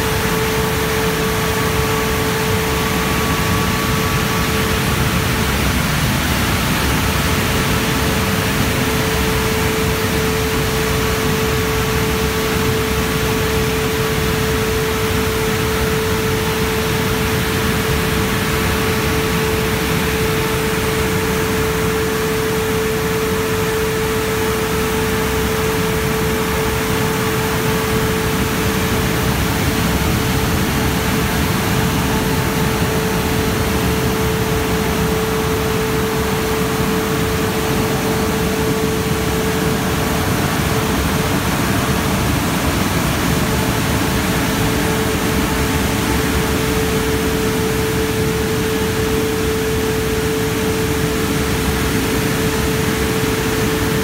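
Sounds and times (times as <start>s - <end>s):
car wash drying blowers: 0.0s - 54.0s.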